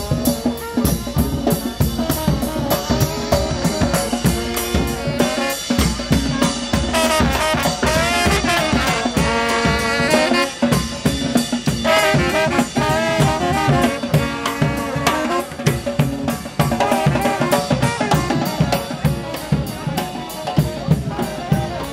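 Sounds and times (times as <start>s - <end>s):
brass band melody: 0.0s - 21.9s
snare and bass drums: 0.0s - 21.9s.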